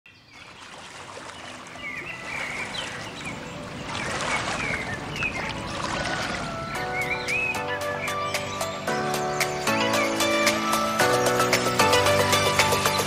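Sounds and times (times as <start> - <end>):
birds chirping: 0.1 - 13.0
washing water: 0.4 - 6.9.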